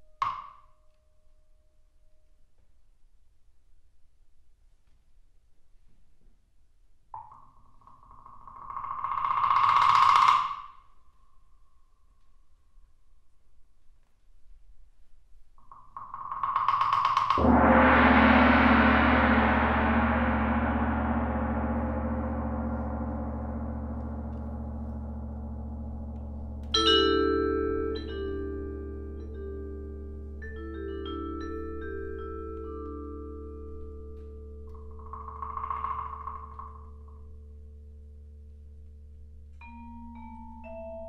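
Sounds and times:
large gong ringing: 17.4s - 29.0s
mallet keyboard notes: 22.5s - 34.7s, 39.6s - 41.0s.

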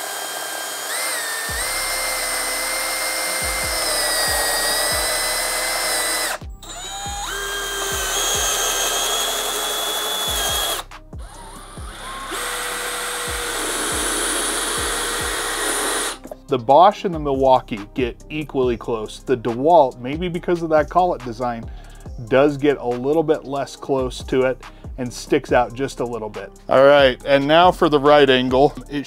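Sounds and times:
cordless drill whine: 0.0s - 16.3s
background music with beat: 1.5s - 29.0s.

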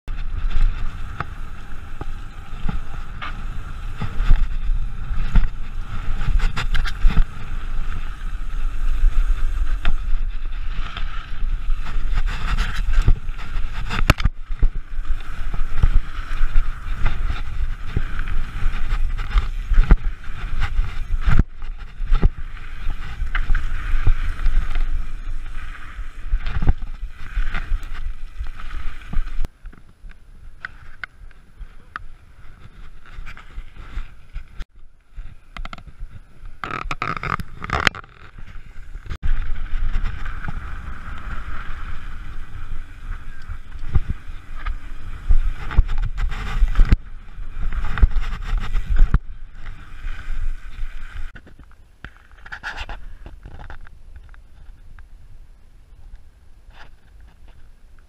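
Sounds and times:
wind buffeting on microphone: 0.1s - 29.5s, 35.3s - 51.6s
bike knocks and rattles: 0.1s - 30.0s.

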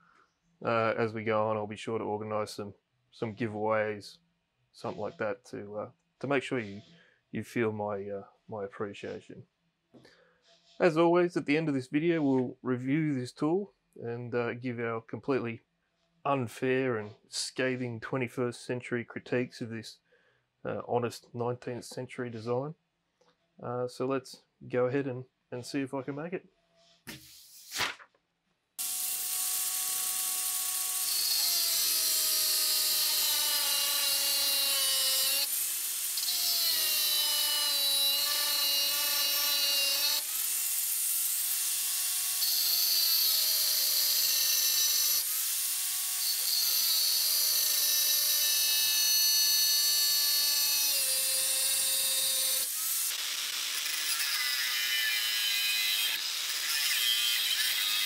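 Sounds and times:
angle grinder cutting steel: 28.8s - 58.0s.

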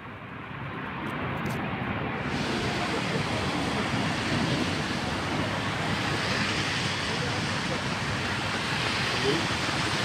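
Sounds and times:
heavy rain hissing: 2.2s - 10.0s.

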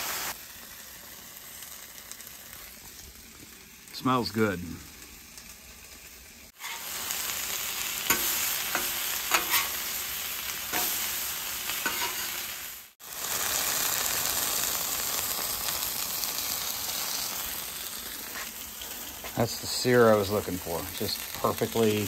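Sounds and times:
stems sizzling on griddle: 0.0s - 22.0s
metal spatula scraping griddle: 6.6s - 7.0s, 8.0s - 9.9s, 10.7s - 11.1s, 11.7s - 12.5s.

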